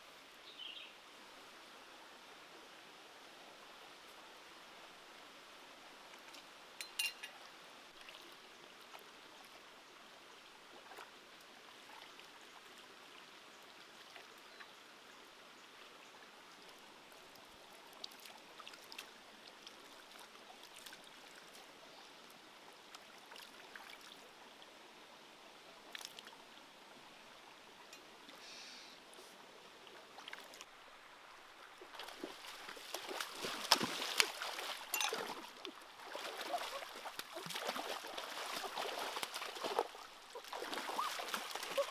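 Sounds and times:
shallow stream rushing over rocks: 29.0s - 41.9s
hands splashing in water: 32.0s - 35.5s.

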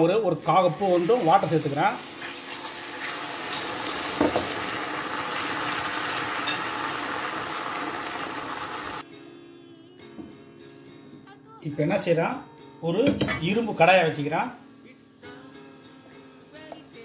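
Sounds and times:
sugar syrup hissing in a pan: 0.4s - 9.0s.

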